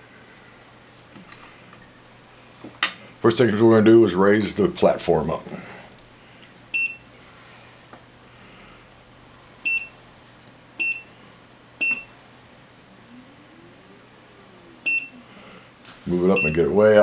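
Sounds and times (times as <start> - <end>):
short high touchscreen beeps: 9.6 - 10.0, 10.8 - 11.1, 11.8 - 15.2.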